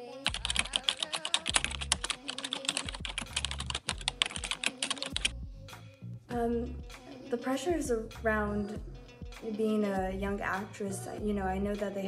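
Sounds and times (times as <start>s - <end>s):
background music with low pulse: 2.8s - 12.0s.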